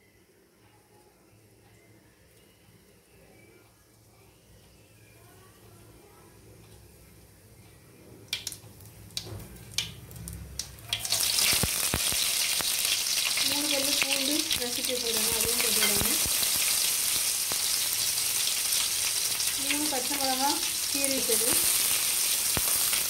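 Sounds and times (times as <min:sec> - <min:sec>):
mustard seeds popping in oil: 0:08.3 - 0:23.0
oil sizzling loudly: 0:08.4 - 0:23.0.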